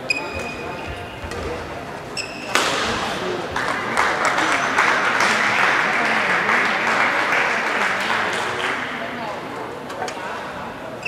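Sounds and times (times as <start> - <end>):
shuttlecock hit: 2.5 - 3.2
spectators applauding and cheering: 3.1 - 9.4.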